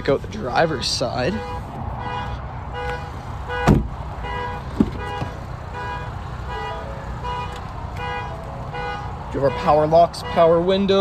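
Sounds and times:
thump: 0:03.6 - 0:03.9, 0:04.7 - 0:05.3.

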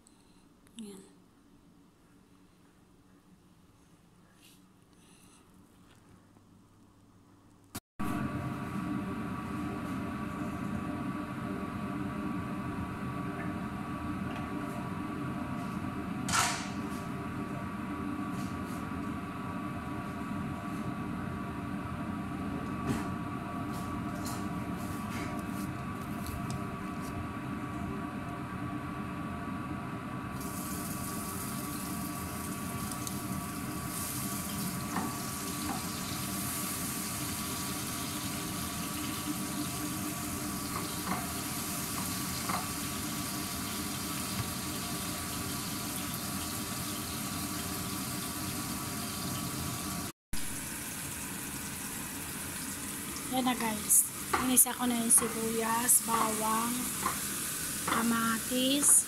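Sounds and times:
vegetables sizzling in oil: 0:30.4 - 0:59.0.

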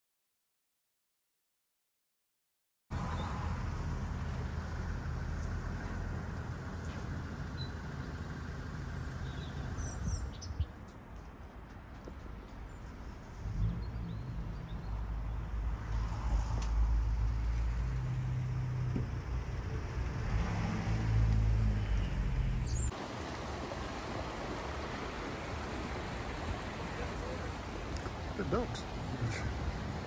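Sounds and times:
low uneven rumble: 0:22.7 - 0:30.0
river running over stones: 0:22.9 - 0:30.0.

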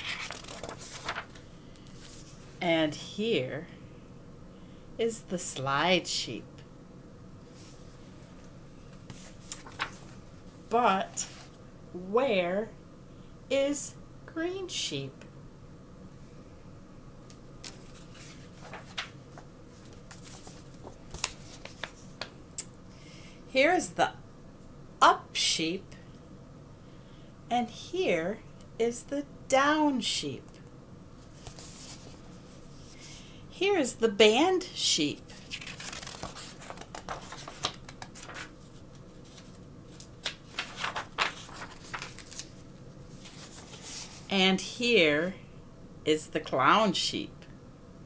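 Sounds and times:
book pages turning: 0:00.0 - 0:02.5, 0:08.9 - 0:10.2, 0:17.6 - 0:22.4, 0:31.2 - 0:32.3, 0:35.3 - 0:44.3
paper rustling: 0:00.0 - 0:02.6, 0:07.5 - 0:10.2, 0:17.6 - 0:22.4, 0:31.2 - 0:33.0, 0:35.3 - 0:44.3.

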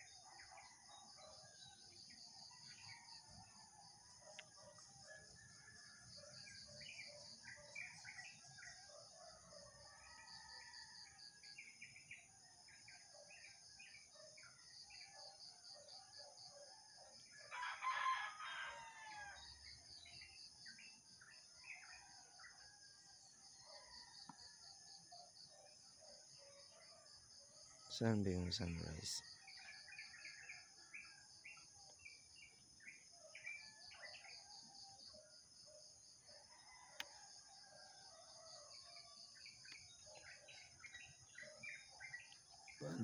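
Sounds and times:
pulsing insect chorus: 0:00.0 - 0:43.0
rooster crowing: 0:17.5 - 0:19.5
faint bird chirps: 0:38.5 - 0:43.0.

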